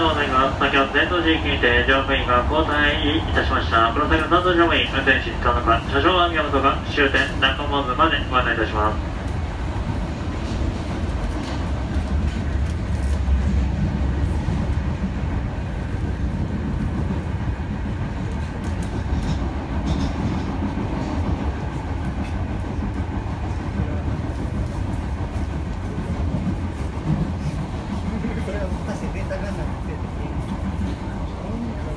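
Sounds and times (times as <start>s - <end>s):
subway train rumbling: 0.0s - 31.9s.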